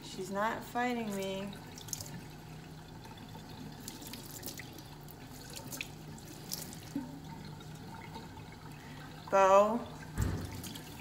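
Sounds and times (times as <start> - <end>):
faucet running into metal sink: 0.8 - 11.0
water splashes and drips: 0.9 - 11.0.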